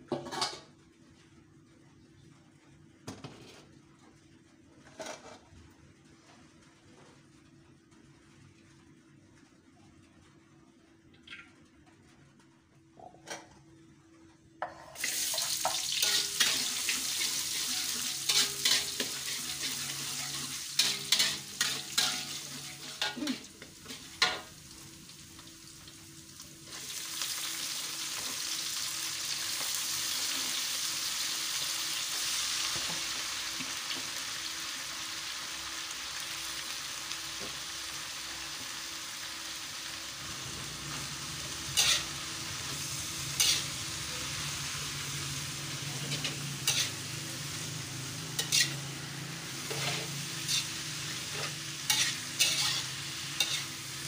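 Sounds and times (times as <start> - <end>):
oil sizzling in a wok: 14.6 - 54.0
spatula scraping a pan: 15.6 - 23.2, 41.7 - 43.9, 46.1 - 47.1, 48.4 - 48.8, 49.5 - 53.9.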